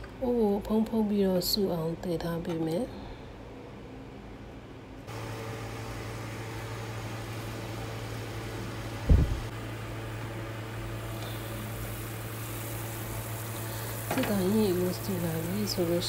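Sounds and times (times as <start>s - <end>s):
machine hum with hiss: 5.0s - 16.0s
dull thump: 9.1s - 9.5s.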